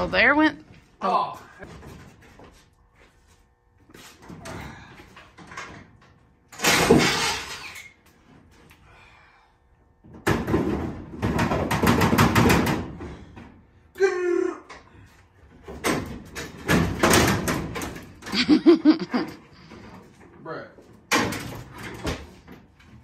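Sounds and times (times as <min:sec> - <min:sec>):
sheet metal rattling and banging: 0:15.7 - 0:18.3.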